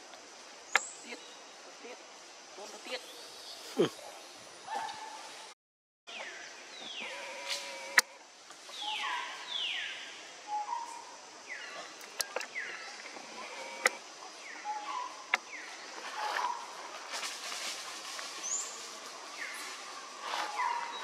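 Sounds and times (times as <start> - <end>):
sharp clicks: 12.0 - 14.0.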